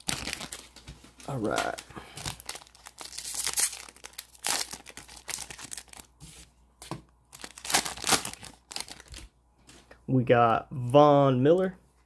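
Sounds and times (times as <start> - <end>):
card pack wrapper tearing: 0.0 - 0.6, 1.3 - 6.1, 7.4 - 9.2.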